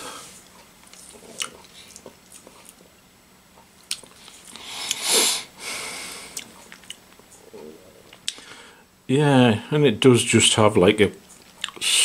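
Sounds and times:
person breathing: 0.0 - 0.4, 4.5 - 6.4, 8.3 - 8.9
lip smacks and clicks: 3.8 - 5.0.

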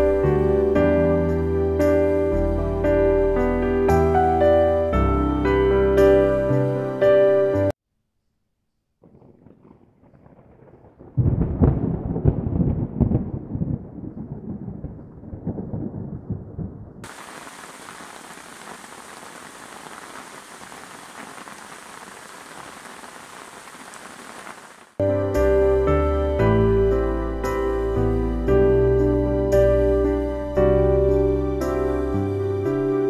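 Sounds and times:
wind gusting over microphone: 9.0 - 17.9
falling rain hiss: 17.0 - 25.0.

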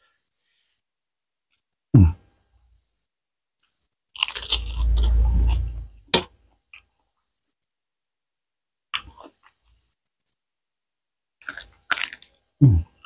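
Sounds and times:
crunching of crispy food: 4.2 - 5.0, 11.4 - 12.3.

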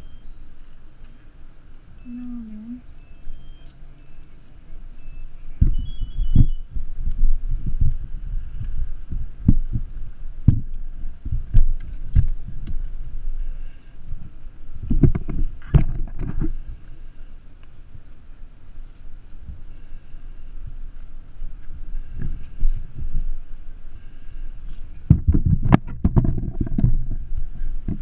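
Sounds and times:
low thumps and rubbing on microphone: 5.6 - 13.4, 14.1 - 17.0, 20.6 - 23.6, 24.6 - 28.0.

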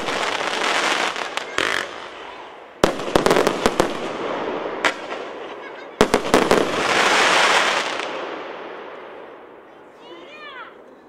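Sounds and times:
fireworks crackling hiss: 0.0 - 9.2.

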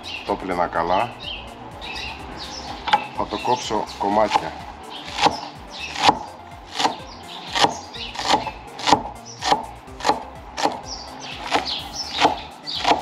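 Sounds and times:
knife chopping on cutting board: 4.3 - 10.8, 11.4 - 13.0.

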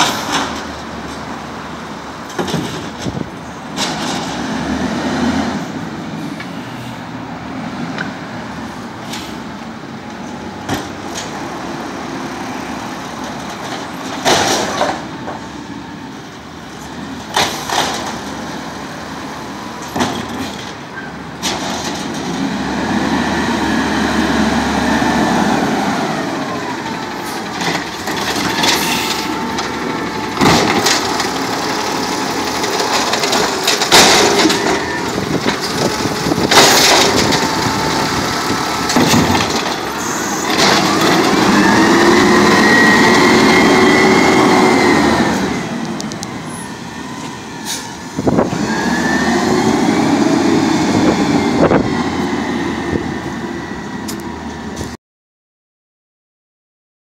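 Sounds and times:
garbage truck engine revving: 3.7 - 6.2, 21.4 - 54.8
truck pulling away: 8.5 - 55.0
carts banging: 26.4 - 44.0.

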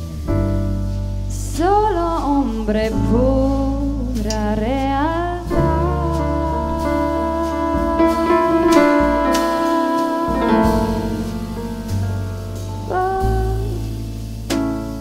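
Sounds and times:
drum kit: 0.0 - 15.0
electric bass: 0.0 - 15.0
piano: 0.0 - 15.0
woman singing: 1.3 - 11.6, 12.8 - 14.0.

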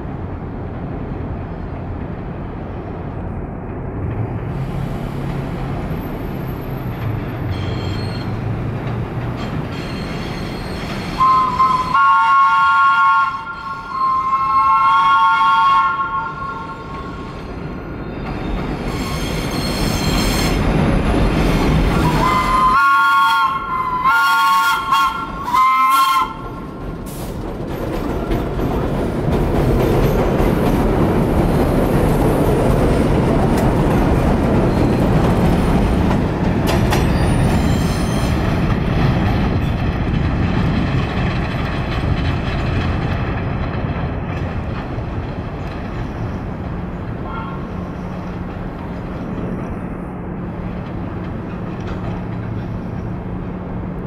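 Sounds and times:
train wheels rumbling on rail: 0.0 - 54.0
train two-tone horn: 9.8 - 17.3, 22.0 - 26.6, 47.2 - 47.9.

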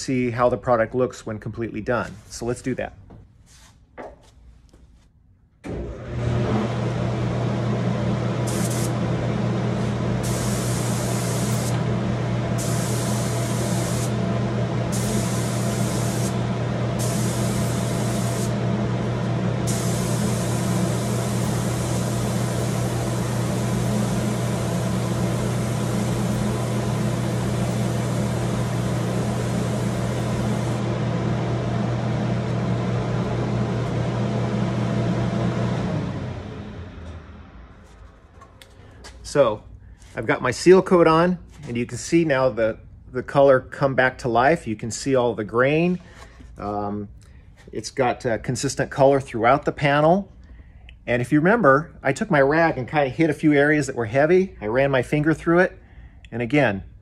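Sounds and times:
ventilation hum and rush: 5.7 - 57.0
spray gun hissing: 8.4 - 9.0, 10.2 - 11.8, 12.6 - 14.3, 14.9 - 18.6, 19.6 - 30.9.

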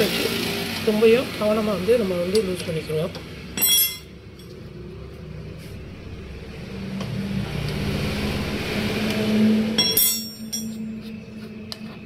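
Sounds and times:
vehicle engine running: 0.0 - 12.0
metal tools clinking: 3.6 - 4.6, 9.8 - 10.8.

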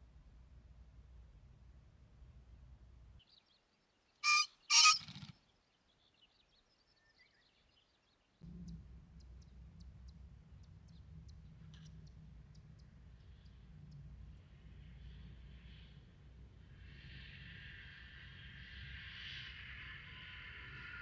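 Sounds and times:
pheasant crowing harsh notes: 4.2 - 5.3
wings fluttering: 4.2 - 5.4.

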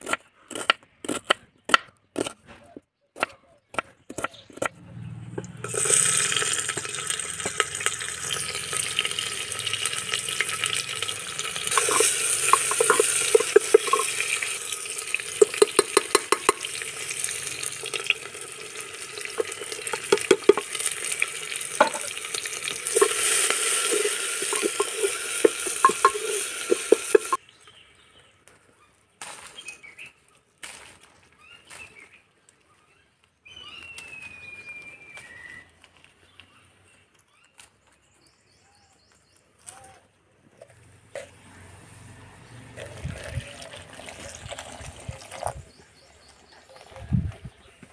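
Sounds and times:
onion sizzling in hot oil: 5.6 - 27.4
stirring scrapes against pot: 11.6 - 14.7, 22.8 - 27.4.

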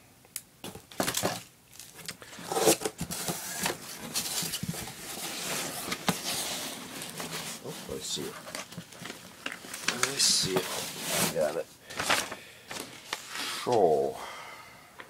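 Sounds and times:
fabric rustling against box: 2.6 - 13.4.

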